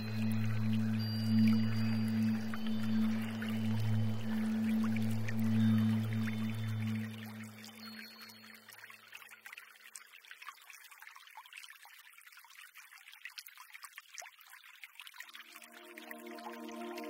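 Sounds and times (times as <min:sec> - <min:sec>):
soft sustained music tone: 0:00.0 - 0:09.7, 0:15.4 - 0:17.0
trickling crackling water: 0:00.0 - 0:17.0.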